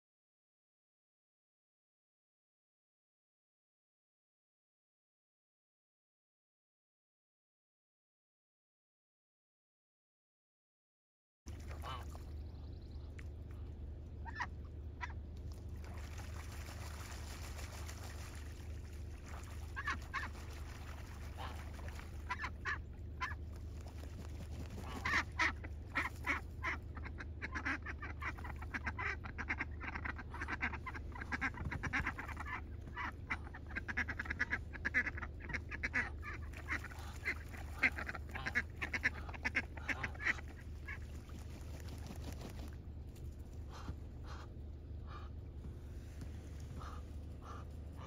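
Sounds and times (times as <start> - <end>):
ducks and geese calling: 11.6 - 42.8, 43.4 - 48.0.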